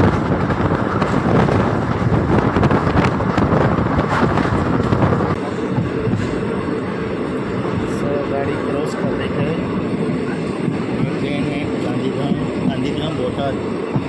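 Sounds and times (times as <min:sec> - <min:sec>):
train wheels clattering on rails: 0:00.0 - 0:06.6, 0:10.3 - 0:14.0
wind buffeting microphone: 0:00.0 - 0:14.0.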